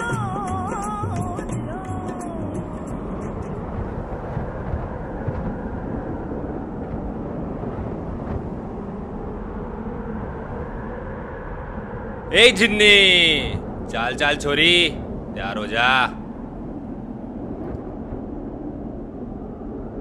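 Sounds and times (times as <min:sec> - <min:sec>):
wind on microphone: 0:02.4 - 0:12.3.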